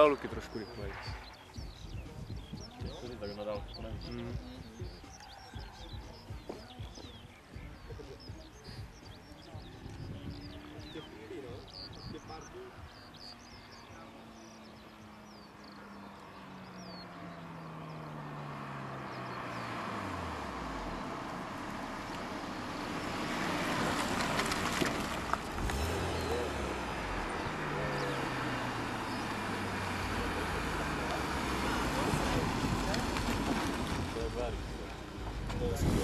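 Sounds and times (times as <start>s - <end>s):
car engines driving past: 0.0s - 36.0s
rush of engine and tyre noise: 0.0s - 36.0s.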